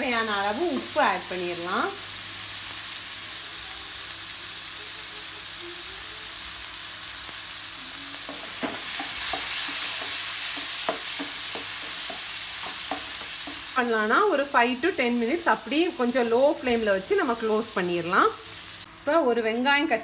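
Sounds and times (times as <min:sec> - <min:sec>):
chicken sizzling in hot oil: 0:00.0 - 0:19.0
spatula knocking against pan: 0:08.3 - 0:13.7.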